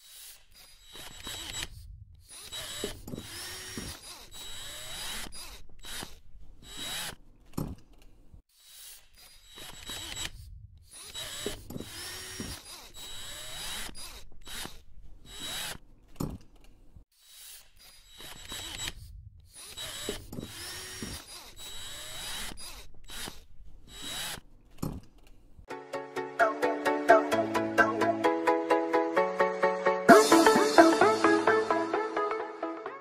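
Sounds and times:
whirring servo motors: 0:00.0 - 0:07.7, 0:08.5 - 0:16.4, 0:17.1 - 0:25.0
robot joints clicking and clunking: 0:00.0 - 0:25.7.

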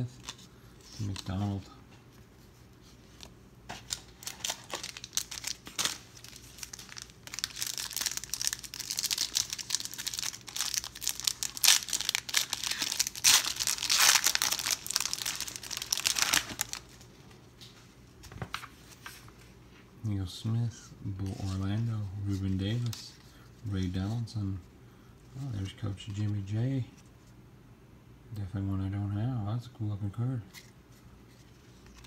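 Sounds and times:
foil wrapper crinkling and tearing: 0:03.8 - 0:17.0.

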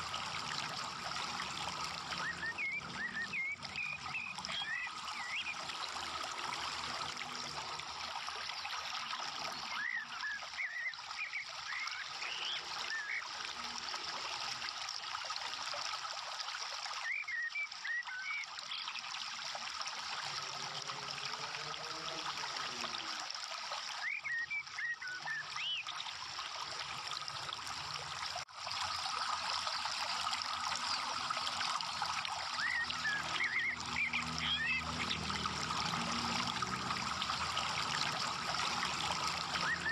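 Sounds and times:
water trickling: 0:00.0 - 0:39.9.

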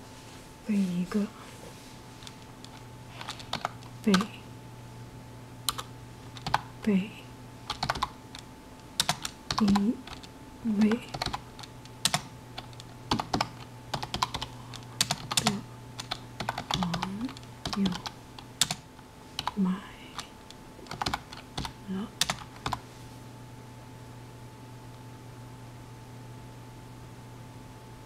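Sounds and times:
typing on computer keyboard: 0:02.6 - 0:04.3, 0:05.7 - 0:06.7, 0:07.7 - 0:08.4, 0:09.0 - 0:18.8, 0:20.9 - 0:22.8.

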